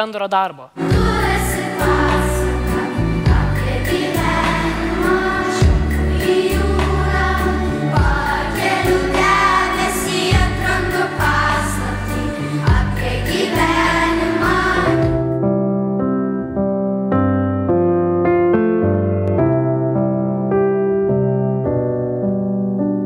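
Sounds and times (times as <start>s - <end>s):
children's choir singing: 0.8s - 15.3s
instrumental accompaniment with bass: 0.8s - 23.0s.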